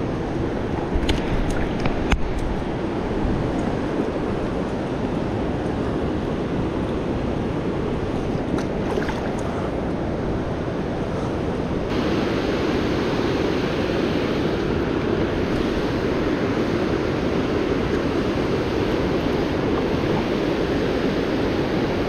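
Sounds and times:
water rushing over a dam: 0.0 - 22.0
faint splashes: 8.5 - 9.8.

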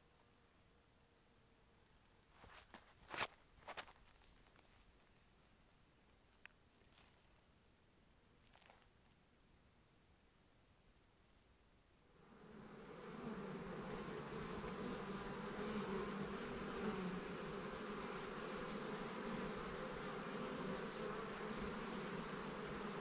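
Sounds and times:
bees buzzing: 12.2 - 23.0.

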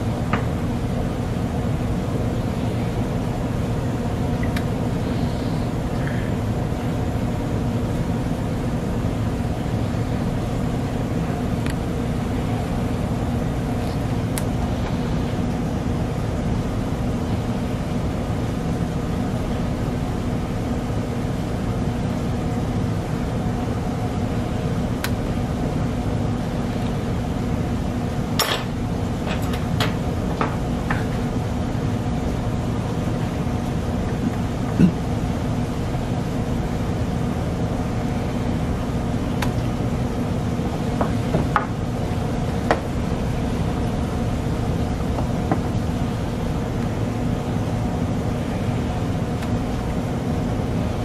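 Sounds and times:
low mechanical hum: 0.0 - 51.0
tableware clinking: 28.4 - 28.7.

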